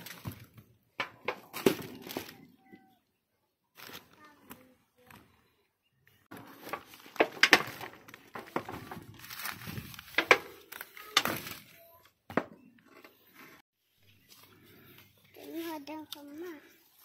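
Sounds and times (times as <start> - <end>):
plastic sheeting and leaves rustling: 6.3 - 11.9.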